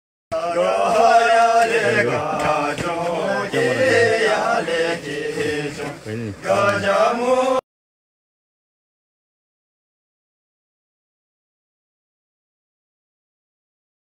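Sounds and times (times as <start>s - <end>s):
men chanting in unison: 0.3s - 7.6s.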